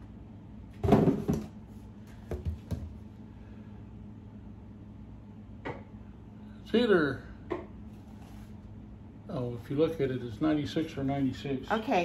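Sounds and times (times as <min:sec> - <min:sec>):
basket knocking on wooden table: 0:00.8 - 0:01.5, 0:02.3 - 0:02.9.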